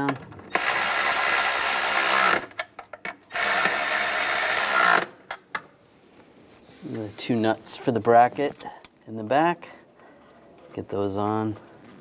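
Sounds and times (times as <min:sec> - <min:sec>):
electric ratchet running: 0:00.5 - 0:02.5, 0:03.3 - 0:05.2.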